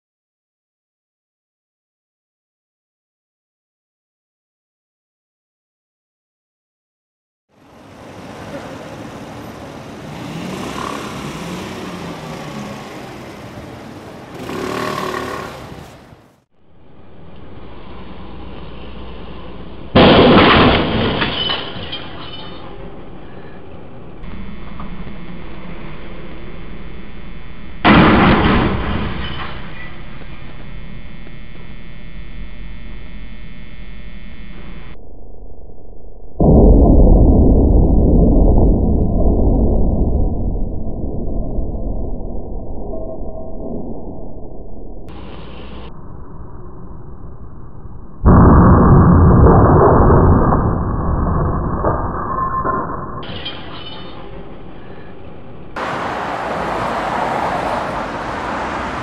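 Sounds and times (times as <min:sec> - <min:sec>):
vehicle engine: 0:07.5 - 0:20.0
street traffic noise: 0:07.5 - 0:20.2, 0:21.2 - 0:28.2, 0:53.4 - 0:59.0
steady background noise: 0:07.6 - 0:35.0
loud metallic bang: 0:27.8 - 0:30.1.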